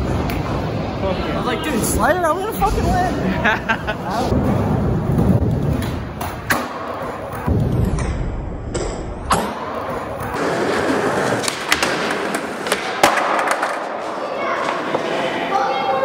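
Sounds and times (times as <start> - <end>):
skateboard wheels rolling: 9.3 - 16.0
skateboard clacks and thuds: 11.3 - 13.9.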